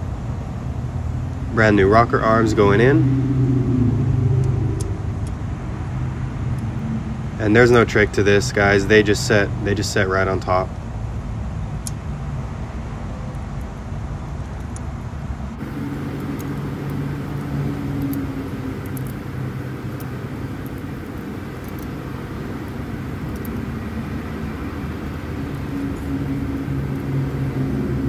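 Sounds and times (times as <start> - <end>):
low mechanical hum: 0.0 - 28.0
faint light clicks: 15.6 - 22.0.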